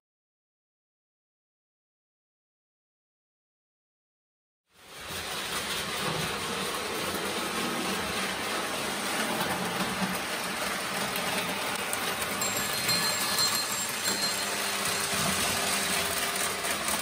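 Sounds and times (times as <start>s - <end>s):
toy train whirring and rattling: 4.8s - 17.0s.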